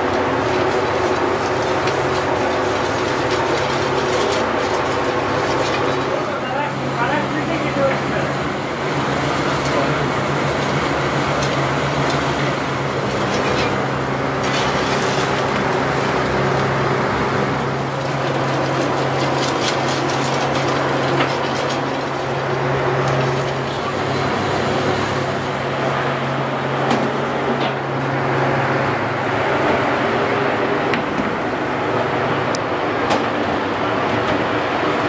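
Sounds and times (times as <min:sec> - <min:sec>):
mixing machine humming: 0:00.0 - 0:35.0.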